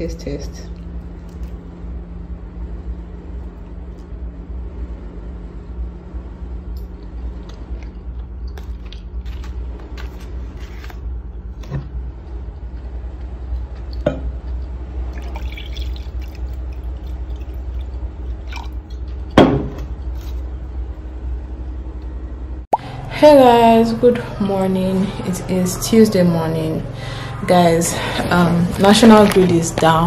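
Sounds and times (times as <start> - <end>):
low hum: 0.0 - 30.0
wine pouring into a glass: 15.2 - 17.6.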